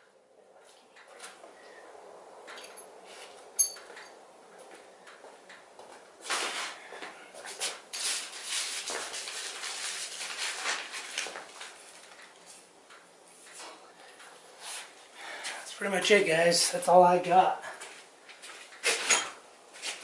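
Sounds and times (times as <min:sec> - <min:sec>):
rustling and handling noise: 0:02.5 - 0:15.7
sharp metallic tink: 0:03.6 - 0:03.9.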